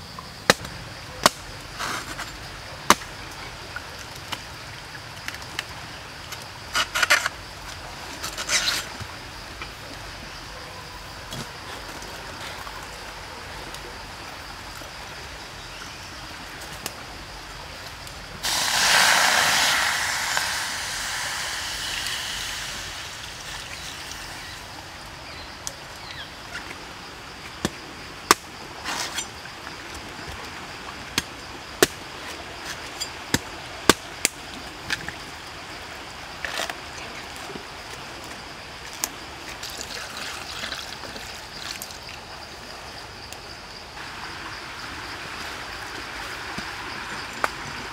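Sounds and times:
rush of pouring liquid: 0:18.4 - 0:24.5, 0:39.6 - 0:42.1
liquid trickling: 0:39.5 - 0:42.2.

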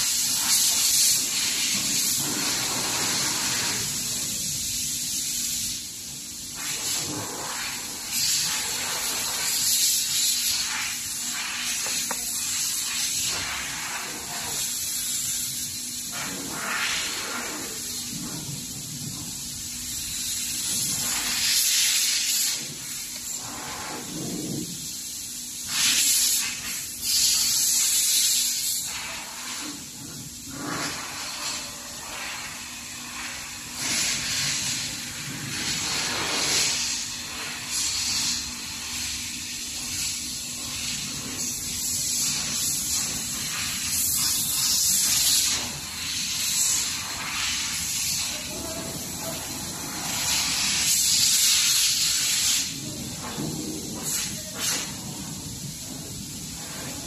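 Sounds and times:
surging hissing noise: 0:00.0 - 0:57.0.

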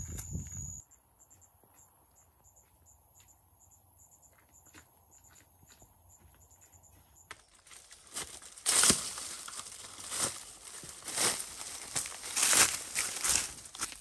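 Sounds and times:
faint insect chirping: 0:00.0 - 0:08.1
leaves and brush rustling: 0:07.3 - 0:14.0.

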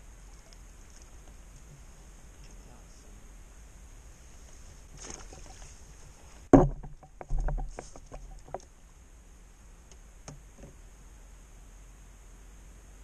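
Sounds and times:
fishing tackle clicks and knocks: 0:06.6 - 0:08.7.

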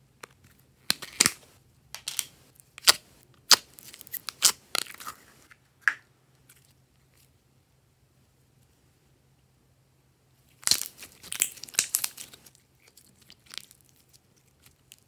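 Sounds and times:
slime crackling: 0:10.6 - 0:15.0.

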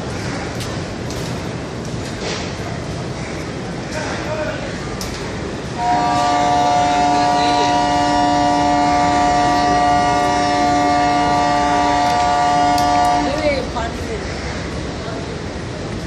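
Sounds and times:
train rumble: 0:00.0 - 0:16.0
locomotive air horn blast: 0:05.8 - 0:13.4.

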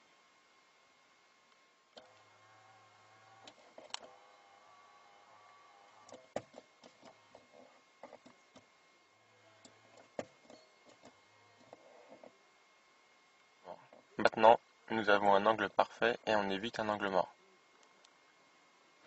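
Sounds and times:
mirror motor whirring: 0:01.9 - 0:13.2.

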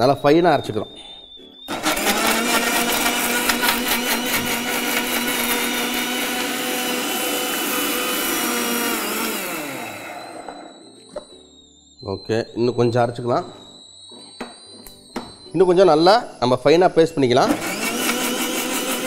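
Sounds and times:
mixer grinder grinding wet paste: 0:01.7 - 0:10.7, 0:17.5 - 0:19.0.

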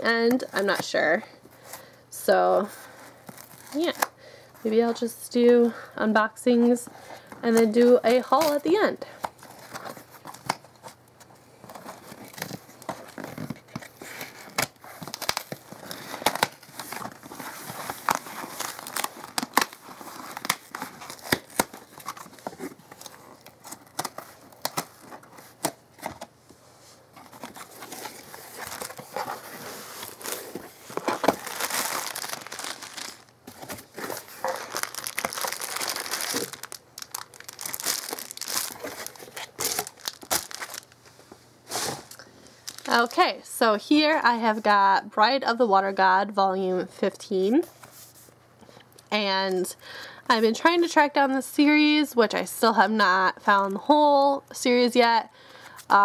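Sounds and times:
plastic wrapping crinkling: 0:03.2 - 0:04.1, 0:11.6 - 0:26.3, 0:27.1 - 0:41.1, 0:42.1 - 0:43.2
cardboard box being handled: 0:27.2 - 0:40.8.

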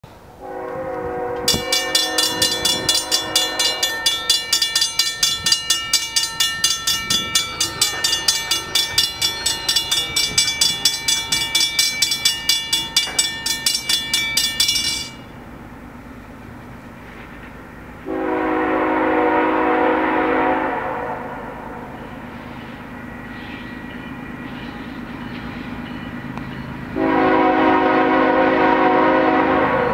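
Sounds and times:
train horn chord: 0:00.3 - 0:05.7, 0:18.0 - 0:22.2, 0:27.0 - 0:29.9
crossing warning bell dinging: 0:01.4 - 0:16.2, 0:21.8 - 0:29.3.

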